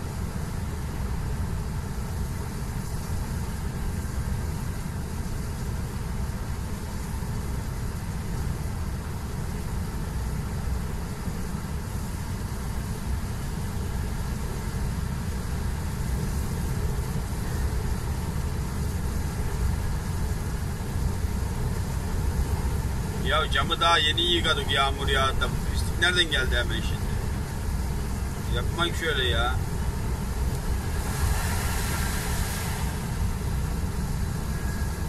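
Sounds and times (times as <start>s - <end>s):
diesel engine drone: 0.0s - 35.0s
tyres hissing on wet road: 10.1s - 35.0s.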